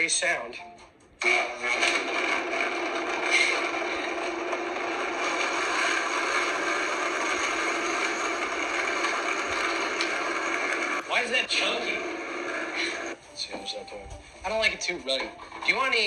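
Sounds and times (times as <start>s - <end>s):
blender running: 1.2s - 13.2s.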